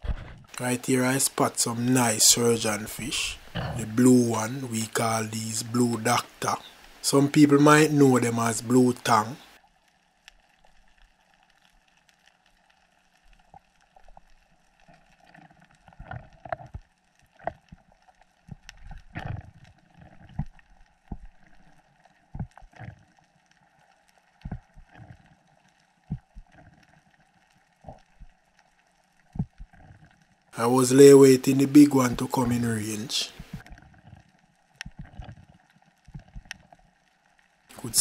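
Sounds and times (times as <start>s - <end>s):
muffled knocks and gurgles of water: 0.0s - 0.5s, 3.5s - 3.8s, 22.3s - 23.0s, 26.1s - 26.5s
faint underwater hiss: 0.0s - 9.7s, 30.6s - 33.7s, 37.7s - 38.0s.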